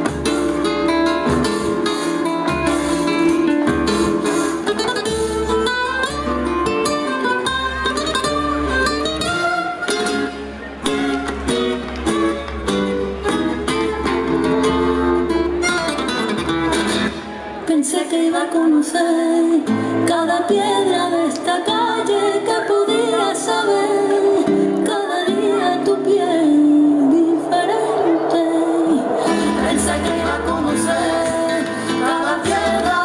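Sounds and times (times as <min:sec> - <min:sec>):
strummed acoustic guitar: 0:00.0 - 0:17.3.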